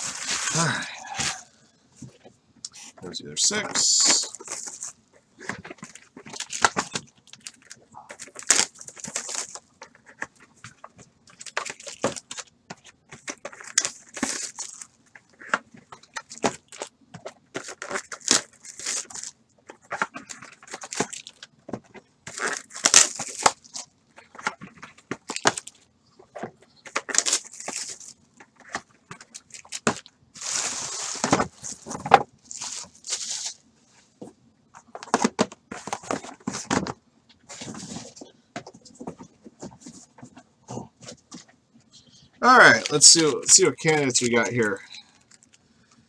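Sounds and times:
foil wrappers crinkling and tearing: 0:00.0 - 0:01.5, 0:03.4 - 0:12.5, 0:13.1 - 0:33.6, 0:42.4 - 0:46.0.

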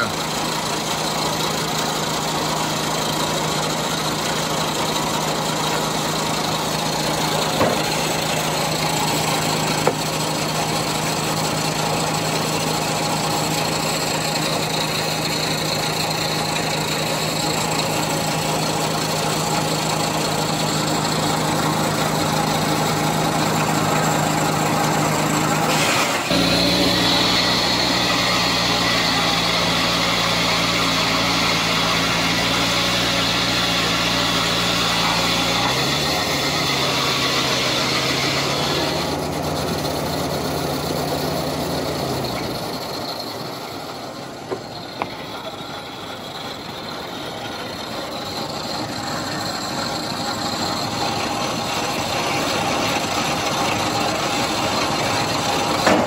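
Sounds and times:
engine idling: 0:00.0 - 0:56.0
sharp knocks: 0:07.5 - 0:08.0, 0:09.8 - 0:10.1.

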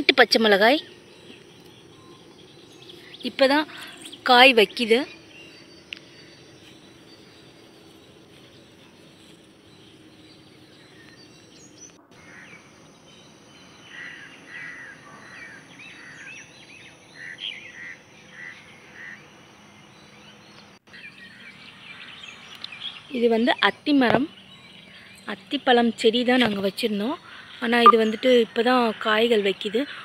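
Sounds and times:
birds chirping: 0:00.0 - 0:30.0
faint outdoor background: 0:00.0 - 0:30.0.

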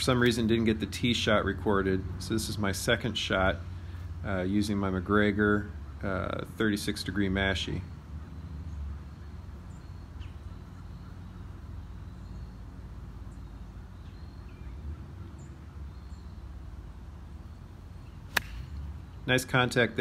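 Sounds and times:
low steady rumble: 0:00.0 - 0:20.0
bird chirps: 0:07.6 - 0:19.3.

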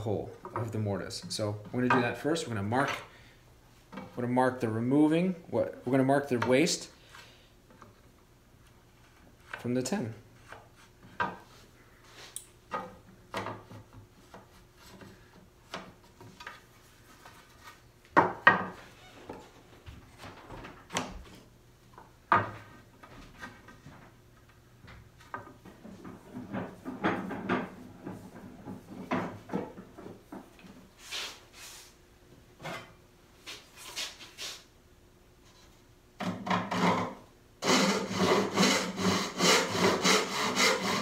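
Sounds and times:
wooden knocks and clatters: 0:24.9 - 0:30.7.

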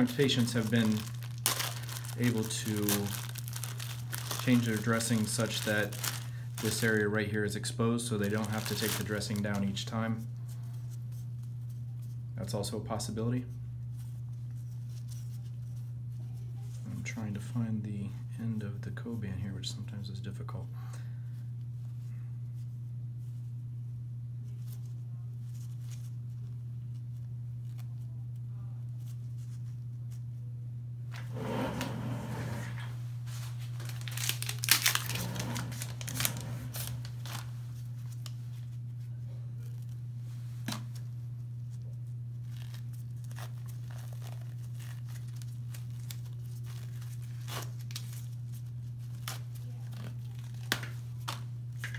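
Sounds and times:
wrapping tearing and crinkling: 0:00.0 - 0:07.2, 0:08.1 - 0:09.8, 0:24.4 - 0:30.2, 0:33.4 - 0:40.0, 0:40.6 - 0:51.9
steady low hum: 0:00.0 - 0:51.9.

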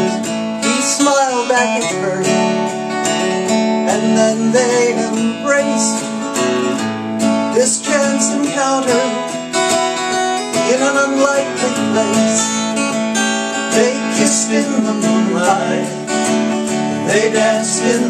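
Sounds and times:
acoustic guitar strumming: 0:00.0 - 0:18.0
gliding melody line: 0:13.4 - 0:16.5.

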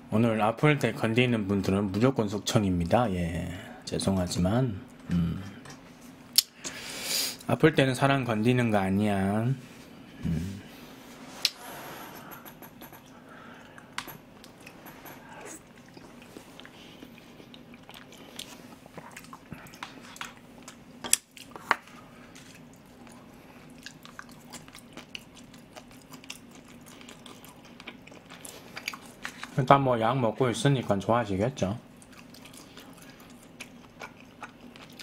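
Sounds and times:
person chewing and mouth smacks: 0:12.7 - 0:29.6, 0:31.9 - 0:35.0.

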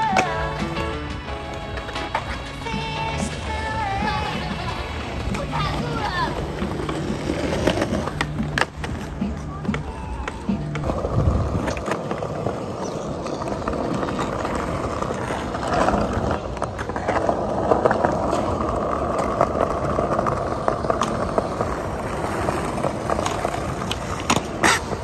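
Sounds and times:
skateboard wheels rolling on stone: 0:00.0 - 0:25.0.

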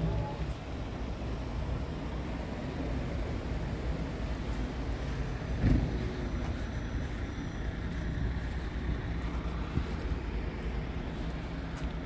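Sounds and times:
diesel engine idling: 0:00.0 - 0:12.0
wind buffeting microphone: 0:04.8 - 0:12.0
thump: 0:05.6 - 0:06.0.

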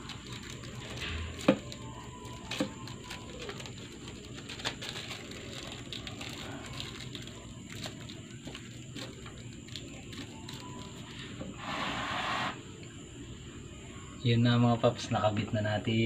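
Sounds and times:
fingers rubbing plastic film: 0:00.0 - 0:12.4.

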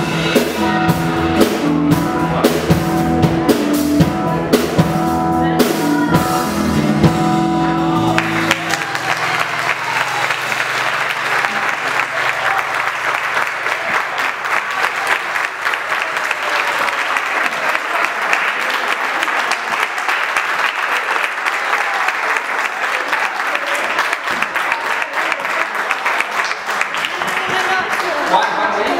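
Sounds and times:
audience applauding: 0:08.0 - 0:28.9.

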